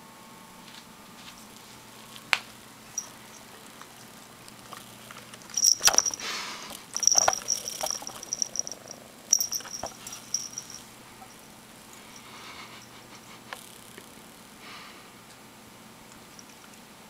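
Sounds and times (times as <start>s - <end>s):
collar tags jingling: 2.9s - 12.9s
fur brushing and handling noise: 9.3s - 10.8s.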